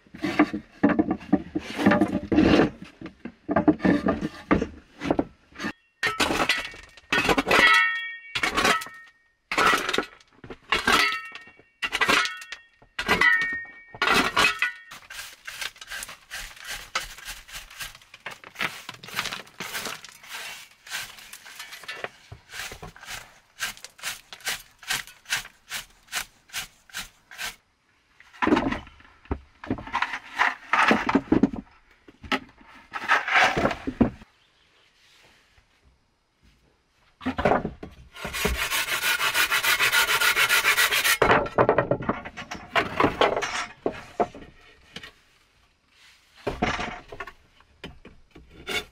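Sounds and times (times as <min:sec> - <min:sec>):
heavy scrapes: 0:14.9 - 0:27.6
brush scrubbing stone wall: 0:15.0 - 0:27.6, 0:38.3 - 0:41.2.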